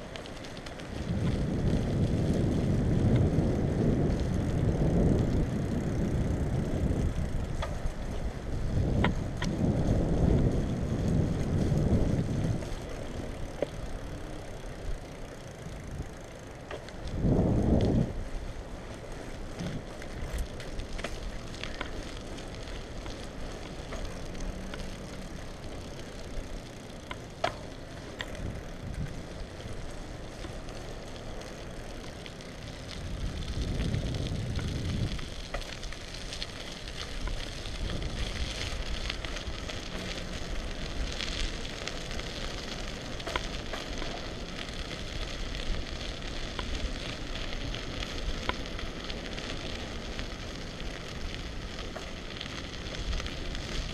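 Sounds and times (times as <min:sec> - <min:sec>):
bicycle tyres hissing on asphalt: 0:00.0 - 0:53.9
bike rattling clicks: 0:00.0 - 0:53.9
wind on microphone: 0:00.9 - 0:14.0, 0:14.6 - 0:18.8, 0:32.4 - 0:41.7.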